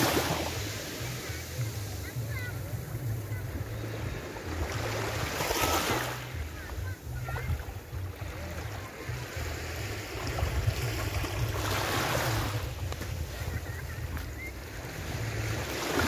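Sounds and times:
small waves washing up beach: 0:00.0 - 0:16.0
wind rumble on microphone: 0:06.8 - 0:16.0.

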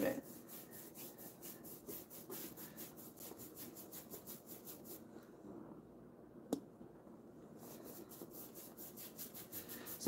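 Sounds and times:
paint brush scrubbing: 0:00.0 - 0:05.1, 0:07.6 - 0:10.0.

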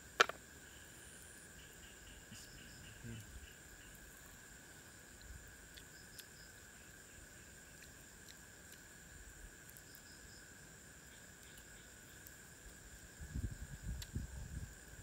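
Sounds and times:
night insects chorus: 0:00.0 - 0:15.0
faint ticks: 0:05.1 - 0:07.0, 0:07.6 - 0:08.9, 0:09.6 - 0:10.4, 0:11.1 - 0:12.8, 0:13.7 - 0:15.0.

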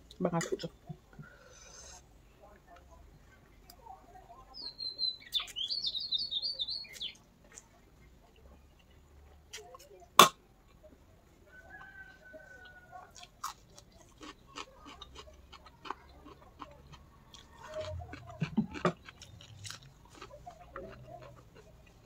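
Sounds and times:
chewing crunchy food: 0:11.7 - 0:22.0.

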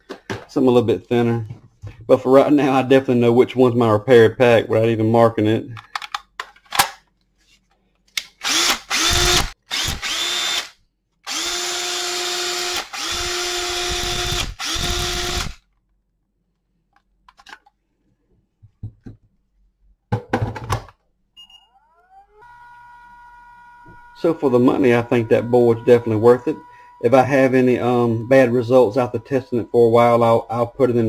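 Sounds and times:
cordless drill motor whine: 0:08.4 - 0:10.7, 0:11.3 - 0:15.6, 0:21.8 - 0:29.8.

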